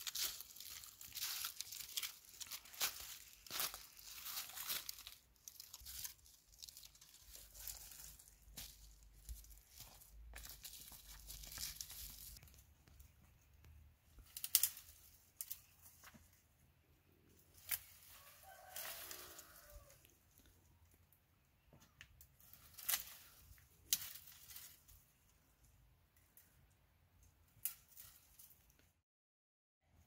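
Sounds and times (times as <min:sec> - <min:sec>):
twigs snapping: 0:00.0 - 0:13.0, 0:13.6 - 0:16.3, 0:17.4 - 0:20.1, 0:21.8 - 0:25.1, 0:27.2 - 0:28.8
dry leaves crackling underfoot: 0:00.0 - 0:16.5, 0:17.3 - 0:20.5, 0:22.2 - 0:25.7, 0:27.5 - 0:28.8.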